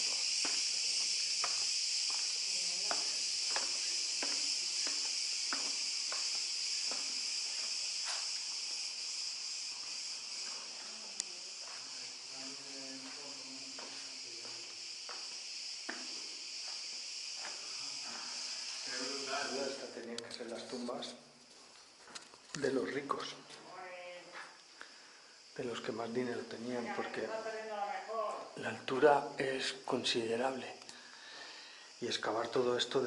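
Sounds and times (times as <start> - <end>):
cicadas buzzing: 0.0 - 33.0
footsteps on dirt: 11.6 - 12.0.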